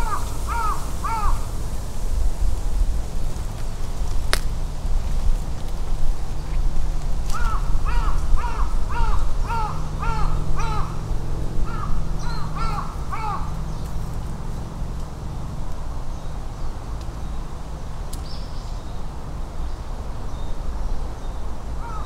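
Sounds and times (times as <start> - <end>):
crow cawing: 0.0 - 1.5, 7.3 - 13.8, 21.8 - 22.0
steady low rumble: 0.0 - 22.0.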